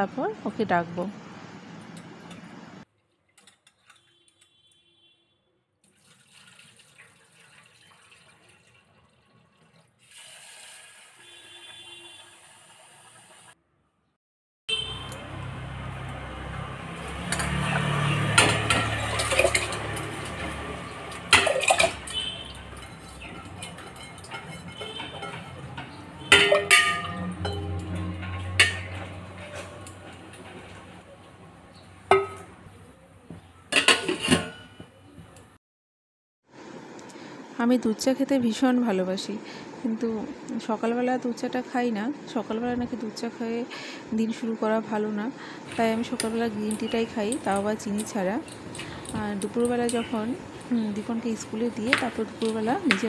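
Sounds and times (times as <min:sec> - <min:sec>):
metal bowl clinking on pot: 0:18.4 - 0:20.5, 0:21.1 - 0:30.8, 0:32.1 - 0:32.6, 0:33.7 - 0:34.9.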